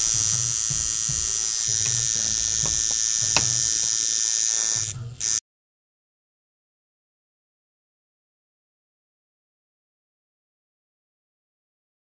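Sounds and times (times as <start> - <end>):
tattoo machine buzzing: 0.0 - 5.4.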